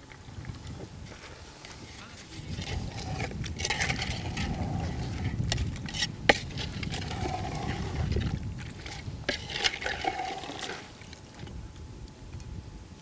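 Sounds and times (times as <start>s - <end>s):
metal spatula scraping pot: 1.6s - 11.0s.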